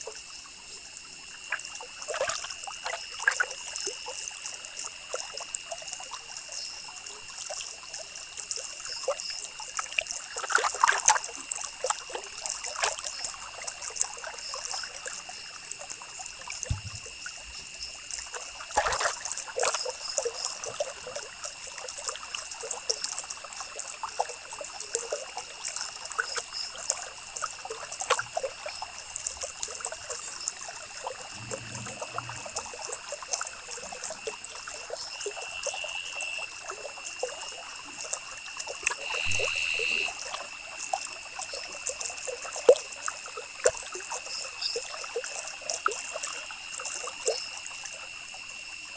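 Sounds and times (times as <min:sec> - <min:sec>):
faint high whine: 0:29.7 - 0:36.6, 0:38.7 - 0:40.4.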